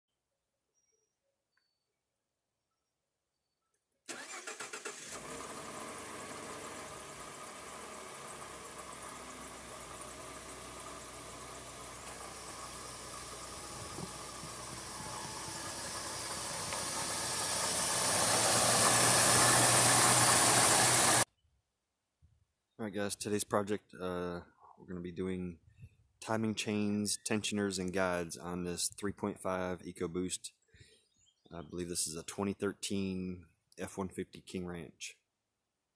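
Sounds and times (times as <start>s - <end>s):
truck engine cranking and idling: 4.1s - 21.3s.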